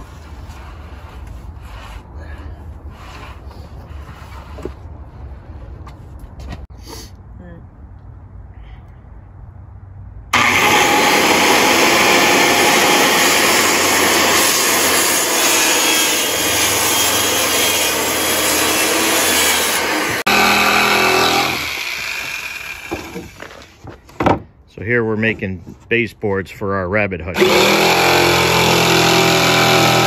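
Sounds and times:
circular saw cutting plywood: 10.4s - 23.8s, 27.4s - 30.0s.

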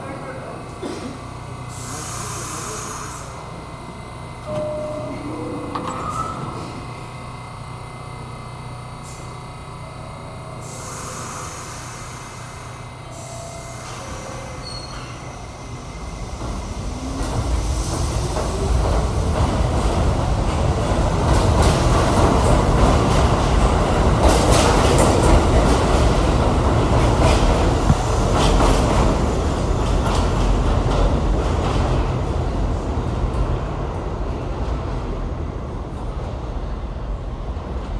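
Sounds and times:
subway train motors whining: 0.0s - 37.9s
wheels clacking on rails: 16.2s - 34.8s.

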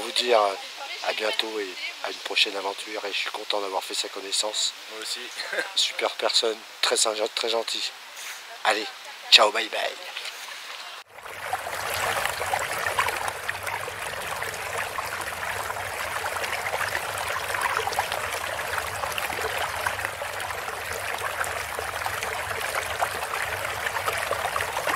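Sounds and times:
water trickling and bubbling: 10.5s - 24.9s.

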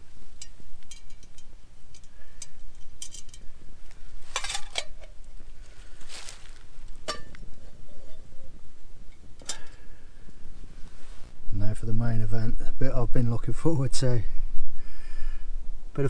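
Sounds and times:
wood fire crackling and popping: 0.0s - 7.9s
metallic clinks of cook pot: 0.4s - 3.5s.

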